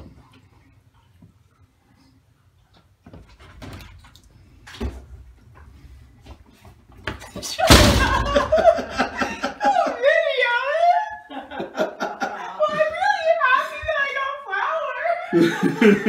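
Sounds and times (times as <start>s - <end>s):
door banging shut: 7.6s - 8.9s.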